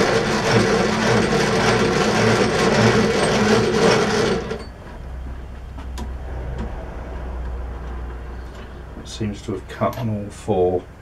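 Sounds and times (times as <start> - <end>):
metal lathe running: 0.0 - 4.7
low hum: 4.6 - 9.4.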